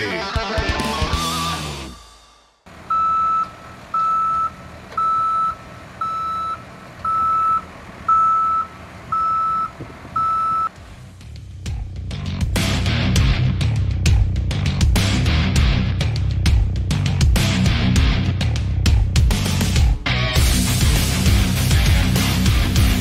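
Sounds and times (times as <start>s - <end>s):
music: 0.0s - 2.6s, 11.0s - 23.0s
low engine rumble: 2.7s - 17.1s
truck reversing alarm beeps: 2.9s - 10.8s.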